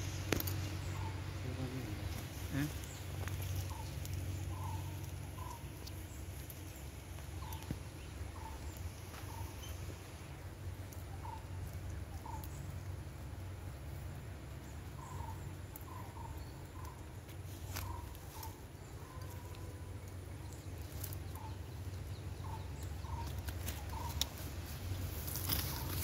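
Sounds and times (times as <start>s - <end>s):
short clipped bird calls: 0.0s - 1.4s, 2.4s - 6.2s, 7.4s - 9.8s, 15.0s - 19.7s, 21.1s - 24.4s, 25.3s - 26.0s.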